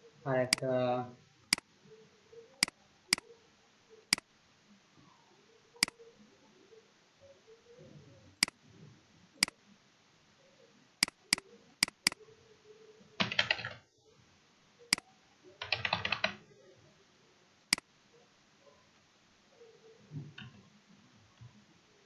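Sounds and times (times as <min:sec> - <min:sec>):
mouse clicks: 0:05.8 - 0:06.0, 0:11.0 - 0:12.2
rapid keyboard typing: 0:11.0 - 0:12.2, 0:13.2 - 0:13.8, 0:15.6 - 0:16.4.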